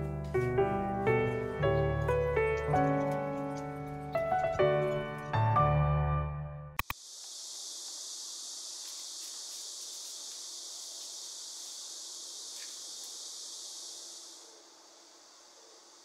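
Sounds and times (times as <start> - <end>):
insects chorus: 0.0 - 5.4, 6.8 - 16.0.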